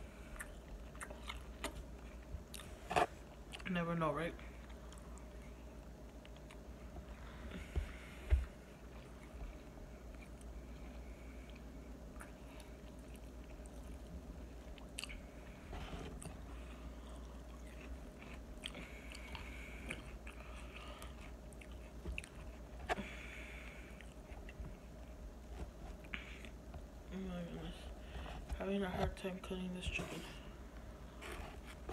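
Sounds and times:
chewing: 0.2 - 3.7, 4.6 - 7.0, 8.9 - 26.6.

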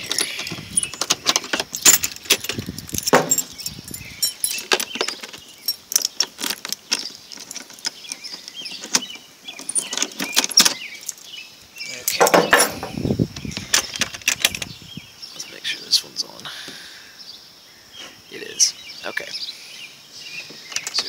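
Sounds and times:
keys jangling on a ring: 0.0 - 7.8.

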